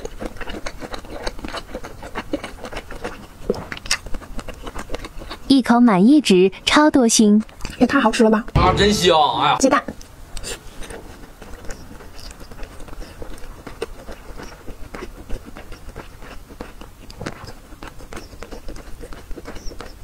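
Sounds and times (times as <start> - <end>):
person chewing food: 0.0 - 5.5, 10.0 - 20.0.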